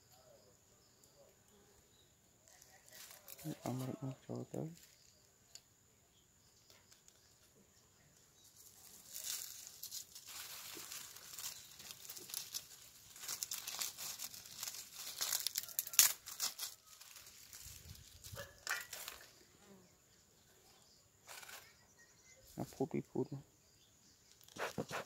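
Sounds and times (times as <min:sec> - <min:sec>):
dry leaves crackling and rustling: 0:02.5 - 0:05.2, 0:08.4 - 0:19.4, 0:21.3 - 0:21.8.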